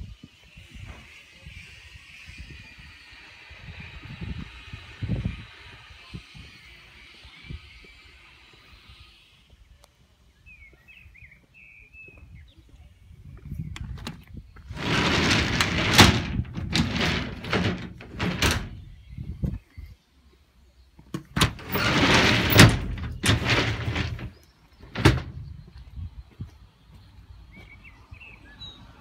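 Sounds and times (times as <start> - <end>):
doors banging shut: 14.7 - 18.8, 21.2 - 25.5
doors rattling while sliding: 14.7 - 18.8, 21.3 - 25.5.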